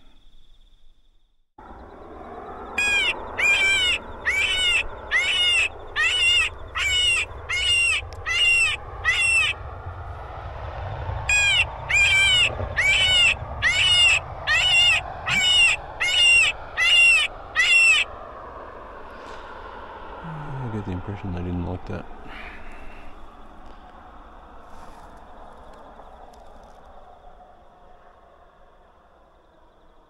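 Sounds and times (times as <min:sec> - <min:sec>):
electronic fox calls: 0:02.8 - 0:09.6, 0:11.3 - 0:18.1.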